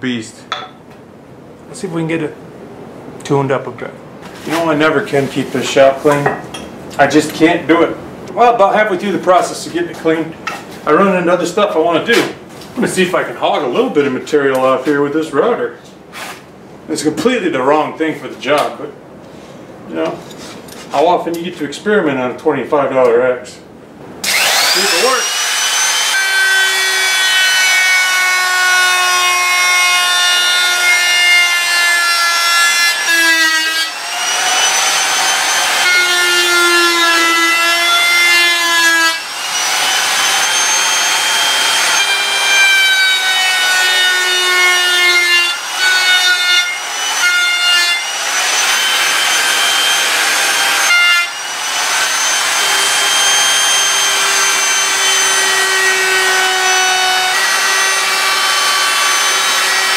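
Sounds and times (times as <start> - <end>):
electric router cutting wood: 24.2 - 59.9.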